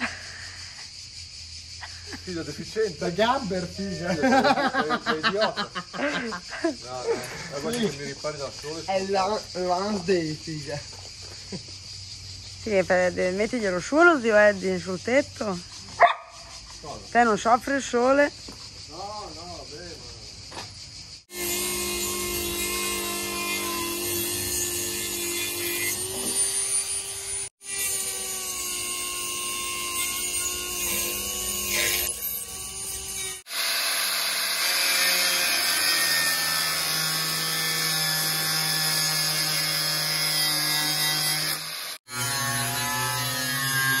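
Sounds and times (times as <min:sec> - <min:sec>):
power tools whining: 0:03.1 - 0:10.3, 0:21.3 - 0:44.0.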